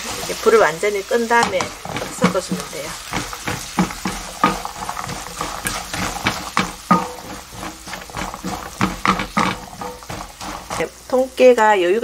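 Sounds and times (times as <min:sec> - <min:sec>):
spatula stirring in frying pan: 0:00.0 - 0:11.6.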